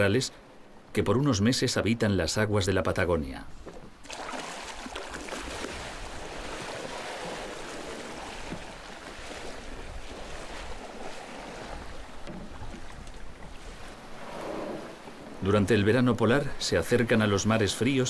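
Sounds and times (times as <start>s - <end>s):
wind: 0.0s - 18.0s
sea water sloshing: 3.6s - 15.8s.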